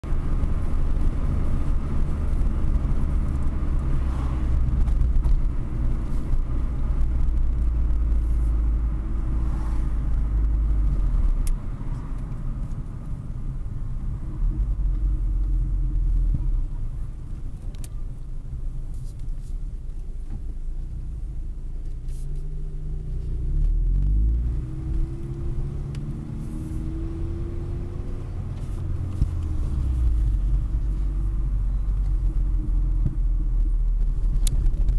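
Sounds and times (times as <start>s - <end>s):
car engine rumble: 0.0s - 34.9s
road noise inside car: 0.0s - 34.9s
engine accelerating: 22.8s - 33.1s.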